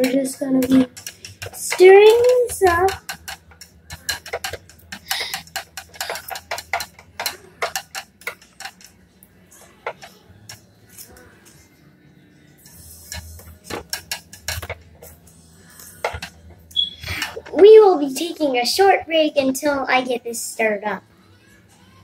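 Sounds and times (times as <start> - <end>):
wooden stick stirring water: 0.0 - 9.0, 9.6 - 11.1, 12.7 - 17.5.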